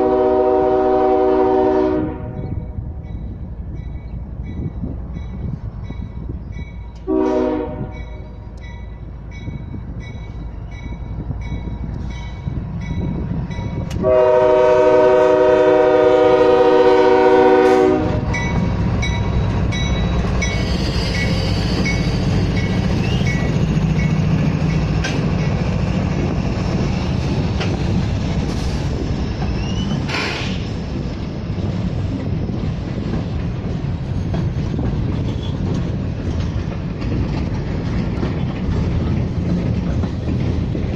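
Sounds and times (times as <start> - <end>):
train horn blasts: 0.0 - 2.8, 7.0 - 8.4, 13.9 - 18.6
freight cars rolling on rails: 0.0 - 40.9
locomotive engine rumble: 0.0 - 40.9
crossing bell dinging: 2.3 - 14.1, 18.2 - 25.8.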